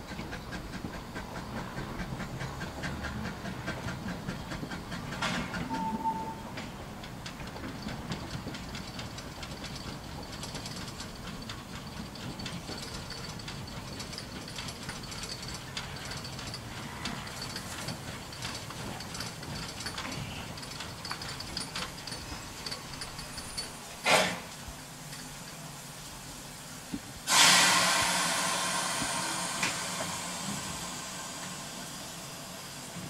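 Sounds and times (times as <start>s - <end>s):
steam train clanking on track: 0.0s - 33.0s
faint high squeal: 5.6s - 6.6s.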